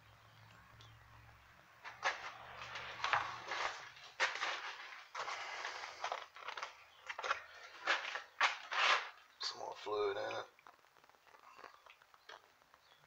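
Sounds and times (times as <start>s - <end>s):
sharp scrapes: 7.9s - 9.2s.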